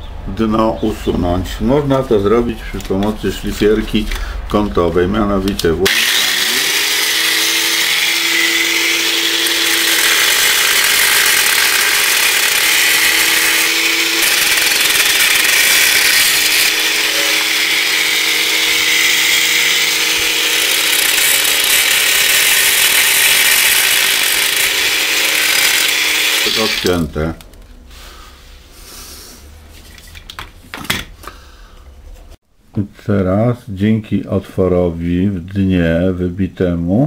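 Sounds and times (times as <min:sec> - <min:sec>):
angle grinder cutting glass: 0:05.8 - 0:27.1.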